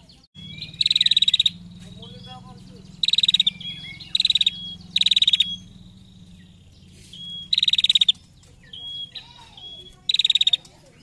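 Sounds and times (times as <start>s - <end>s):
bird rapid trill: 0.0s - 11.0s
thin bird whistle: 3.0s - 6.2s, 6.9s - 10.6s.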